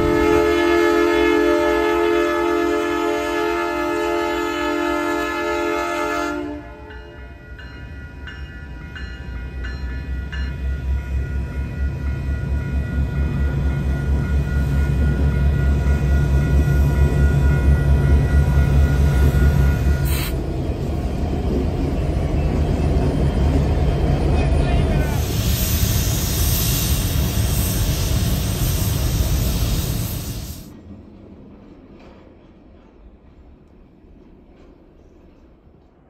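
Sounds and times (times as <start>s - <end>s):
locomotive horn: 0.0s - 7.1s
diesel train rumbling past: 0.0s - 36.0s.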